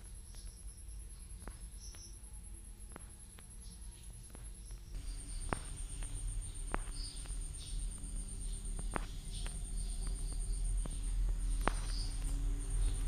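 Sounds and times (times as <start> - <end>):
high-pitched pulsing chirp: 4.6 - 13.0
low hum: 4.9 - 13.0.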